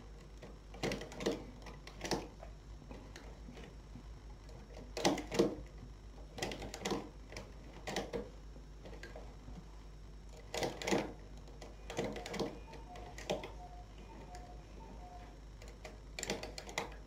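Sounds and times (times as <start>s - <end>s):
knitting machine needles clicking: 0.0s - 3.8s, 4.4s - 9.3s, 10.3s - 17.0s.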